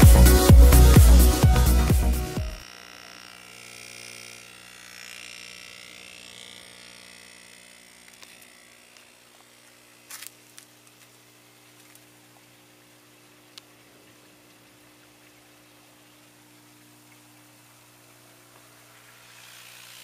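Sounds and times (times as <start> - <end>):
air pump humming: 0.0 - 12.3, 17.7 - 20.0.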